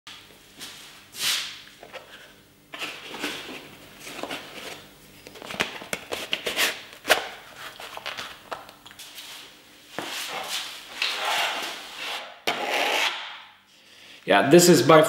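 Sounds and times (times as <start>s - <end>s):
plastic glove rubbing and rustling: 2.8s - 12.4s.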